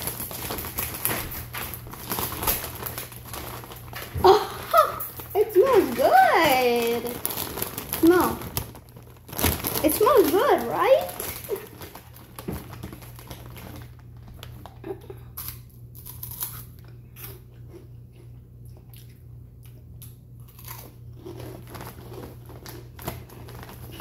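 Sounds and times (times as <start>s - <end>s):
chips crunching while chewed: 0.0s - 24.0s
low steady hum: 0.0s - 24.0s.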